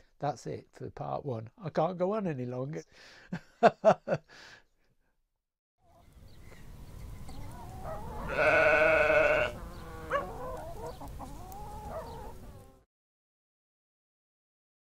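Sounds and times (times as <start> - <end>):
sheep bleating: 8.2 - 10.2.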